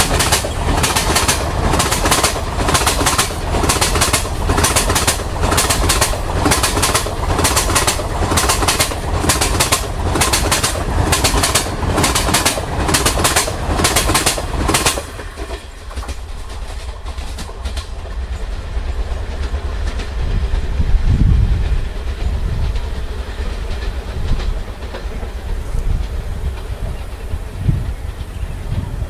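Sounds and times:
low train rumble: 0.0s - 29.0s
train wheels clattering over rail joints: 0.0s - 29.0s.

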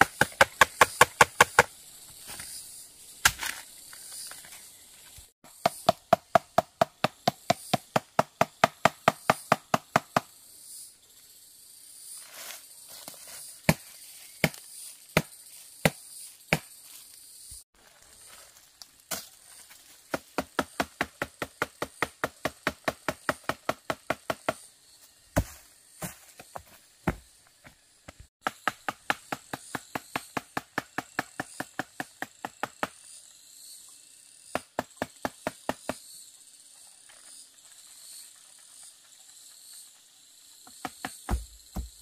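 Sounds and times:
forest insects humming: 0.0s - 42.0s
knife chopping on wooden board: 40.8s - 42.0s.

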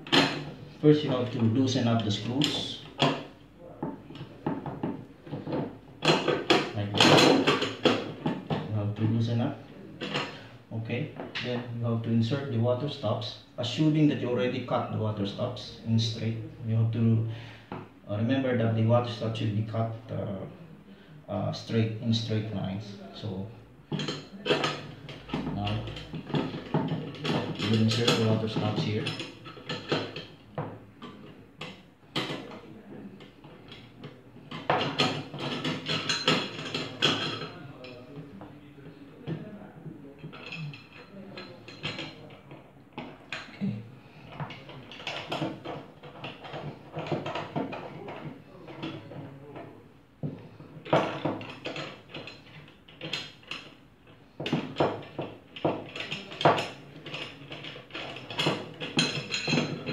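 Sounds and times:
knocks and clinks on metal jig: 23.9s - 38.0s, 40.2s - 59.9s
metal clamp bars clinking: 33.2s - 38.0s, 50.8s - 53.8s, 54.4s - 59.9s.

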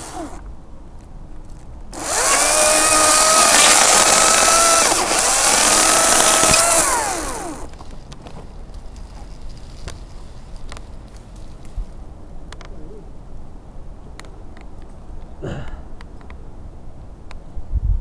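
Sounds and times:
electric chainsaw whining: 0.0s - 0.4s, 2.0s - 7.8s
chain cutting into wood: 1.9s - 7.9s.

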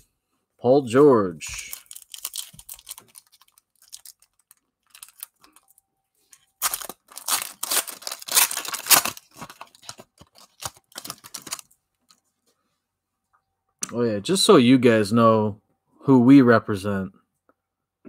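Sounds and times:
plastic wrapper tearing and crinkling: 1.5s - 5.8s, 6.4s - 11.7s.

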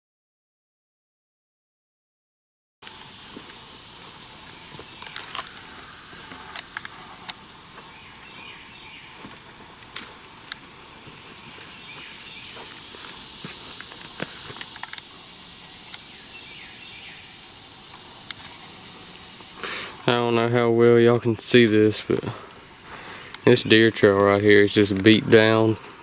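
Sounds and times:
insects droning: 2.8s - 26.0s
footsteps on dirt and leaves: 2.9s - 16.3s.

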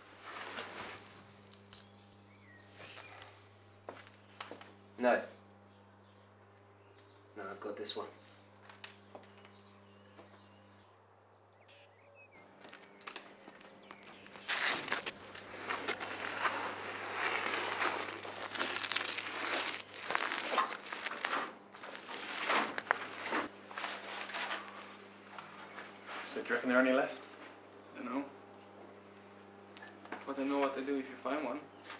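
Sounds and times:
feet trampling dry vegetation: 12.5s - 26.4s
brush rustling and crackling: 12.6s - 26.5s.

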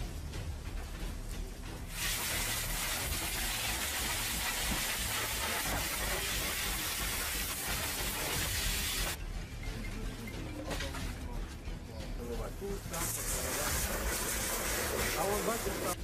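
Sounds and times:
fire hose spraying water: 1.9s - 9.2s, 12.9s - 16.0s.

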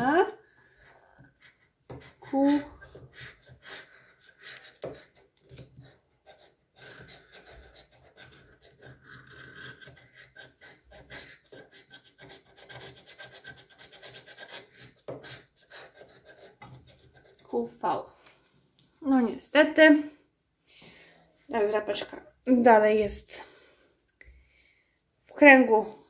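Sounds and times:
scraping scratch card: 1.4s - 17.5s.

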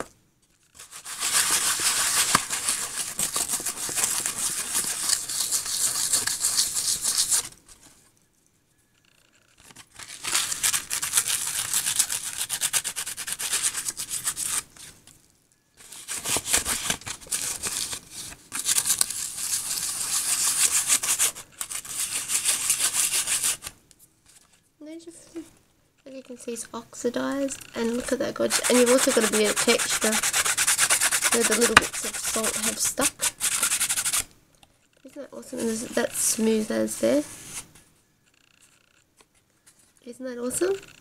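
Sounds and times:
fingers scratching salt off paper: 0.8s - 7.6s, 10.0s - 15.0s, 15.8s - 23.7s, 27.5s - 34.3s.

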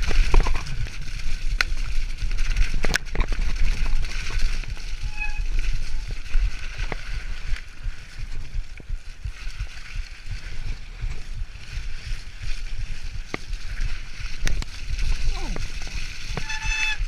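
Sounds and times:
bike thumps and rattles: 0.0s - 8.5s
wind buffeting microphone: 0.0s - 17.0s.

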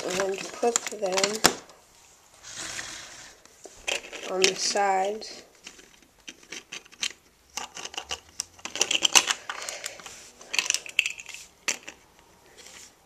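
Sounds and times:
plastic bricks clicking: 0.0s - 1.7s, 5.6s - 12.0s.

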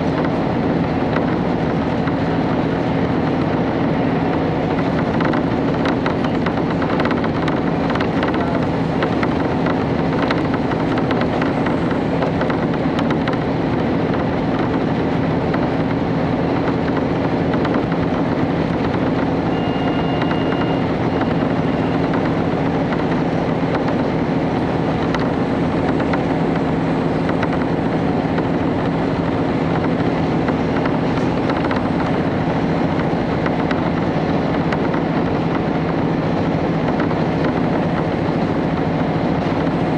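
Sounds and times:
diesel engine drone: 0.0s - 39.9s
wheel and rail noise: 0.0s - 39.9s
high-pitched tone: 19.5s - 22.0s.

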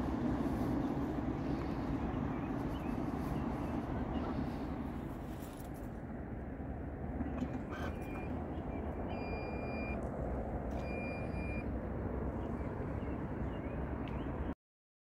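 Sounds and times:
low background rumble: 0.0s - 14.5s
electronic beeps: 9.1s - 10.0s, 10.8s - 11.7s.

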